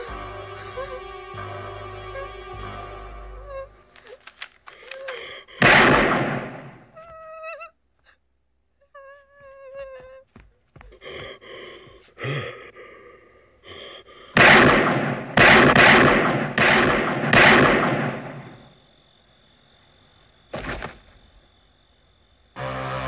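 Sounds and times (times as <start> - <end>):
eerie music: 0.0 - 4.3, 22.4 - 23.0
person gasping and sobbing: 3.3 - 5.6, 10.9 - 14.4
handgun shots: 5.6 - 6.7, 14.4 - 18.4
high ringing tone: 18.2 - 23.0.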